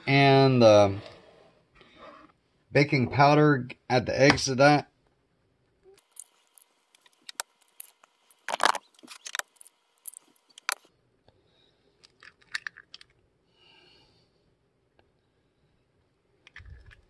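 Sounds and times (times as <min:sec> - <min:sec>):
eggshells cracking: 0:06.0 - 0:10.8, 0:12.0 - 0:13.1.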